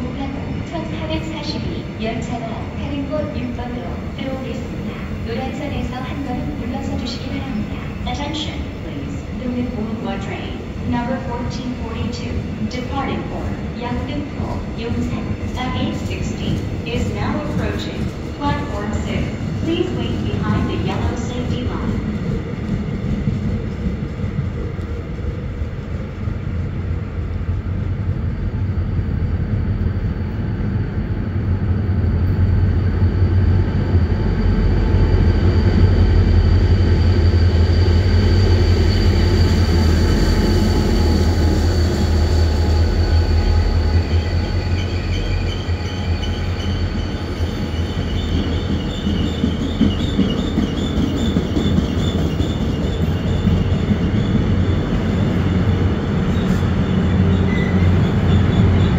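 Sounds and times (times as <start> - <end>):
train wheels squealing: 36.7 - 58.9.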